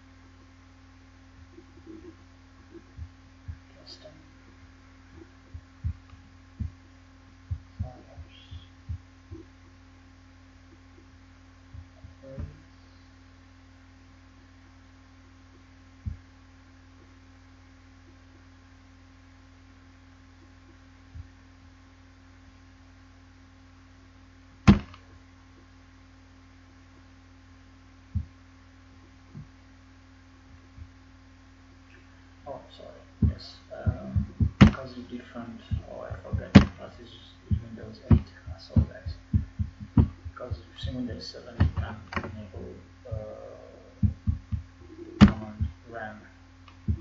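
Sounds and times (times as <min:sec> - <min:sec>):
low electrical hum: 0:00.0 - 0:47.0
mouse clicks and thumps: 0:24.7 - 0:25.0, 0:34.2 - 0:34.8, 0:36.3 - 0:36.8, 0:41.6 - 0:42.4.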